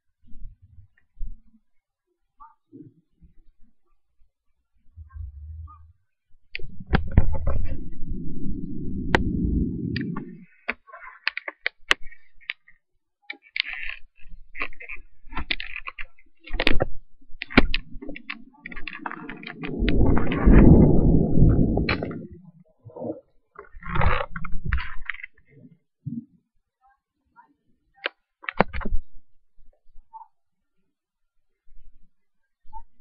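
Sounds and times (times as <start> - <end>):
thunder rumbling: 6.8 - 10.4, 18.8 - 22.4.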